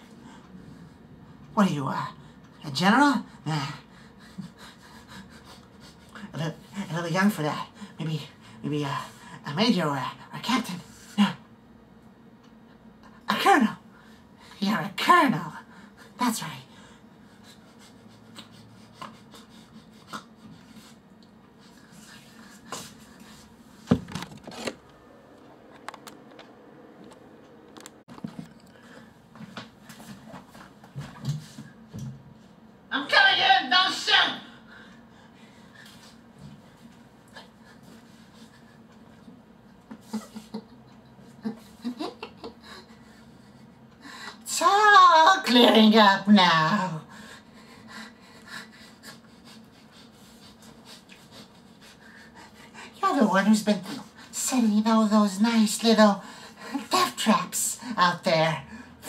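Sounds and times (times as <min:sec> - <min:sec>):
low steady hum: 0:00.0 - 0:59.0
person breathing: 0:28.6 - 0:29.3.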